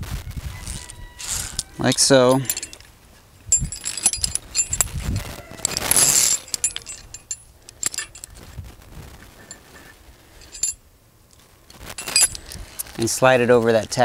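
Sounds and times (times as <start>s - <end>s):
metal scrape: 0.6s - 2.9s, 3.5s - 8.5s
wire rope hardware clinking: 0.6s - 8.5s, 10.4s - 10.8s, 11.7s - 14.0s.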